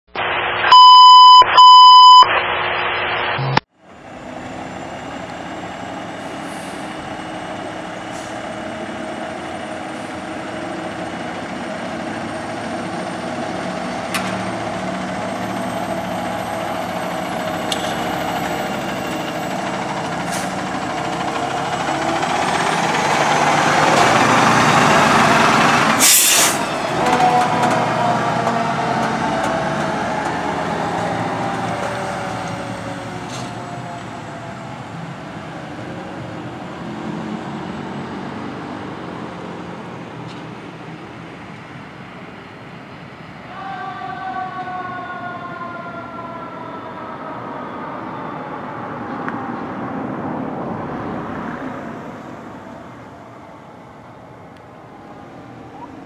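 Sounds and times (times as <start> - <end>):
loud electronic beeps: 0.1 - 3.7
diesel engine running: 3.4 - 42.9
air brake hiss: 6.2 - 7.0, 8.1 - 8.4, 26.0 - 26.7.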